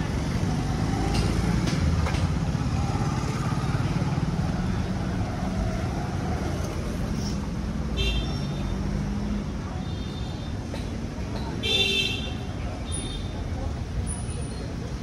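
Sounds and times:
vehicle engines running: 0.0s - 7.9s.

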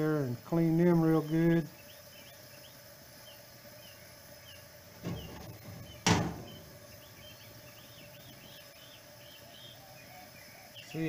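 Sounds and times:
small birds chirping: 0.0s - 11.0s
stove burner hissing: 0.0s - 11.0s
sharp knock: 5.0s - 6.7s.

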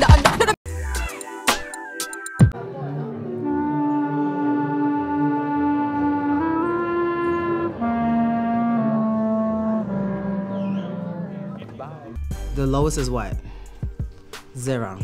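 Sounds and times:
clarinet playing low notes: 2.6s - 12.2s.

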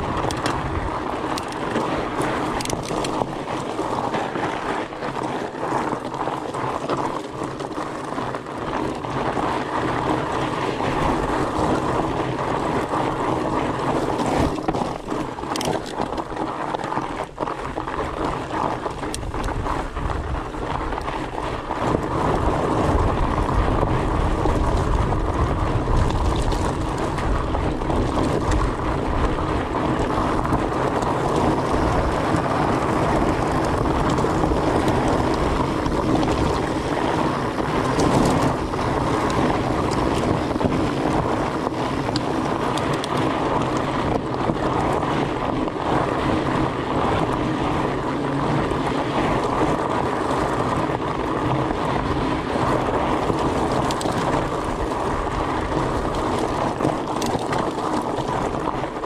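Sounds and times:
bike tyres crunching over gravel: 0.0s - 59.0s
wind rushing over microphone: 0.0s - 59.0s
heavy low rumble: 46.0s - 50.5s.

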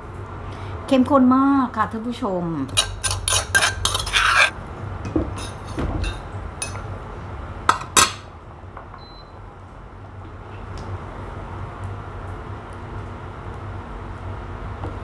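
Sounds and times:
utensil scraping clay mortar: 2.8s - 4.6s
faint short beep: 9.0s - 9.4s.

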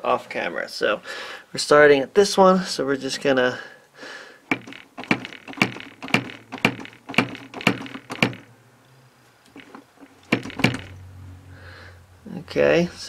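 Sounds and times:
hammer tapping metal punch: 4.5s - 8.4s, 9.5s - 11.0s.

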